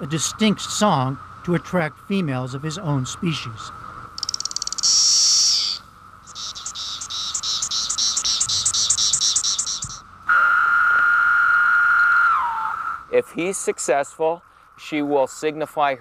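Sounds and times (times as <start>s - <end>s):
cicada rapid ticks and buzz: 0.0s - 11.1s
cicada pulsing call: 0.0s - 15.6s
cicada loud steady buzz: 0.0s - 16.0s.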